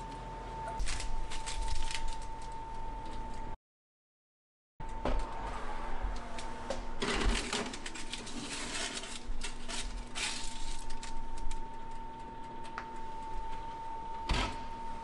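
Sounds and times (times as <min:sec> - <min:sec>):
steady high hum: 0:00.0 - 0:03.6, 0:04.8 - 0:15.0
aluminium foil crinkling: 0:00.8 - 0:03.2, 0:06.4 - 0:13.4
pan scraping on oven rack: 0:07.0 - 0:11.0.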